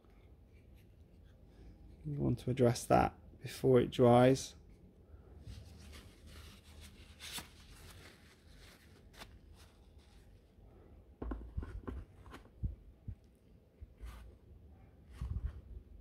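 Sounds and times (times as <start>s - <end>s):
paper towel rustling: 5.4s - 10.6s
wood knocking in plastic tray: 11.2s - 12.0s.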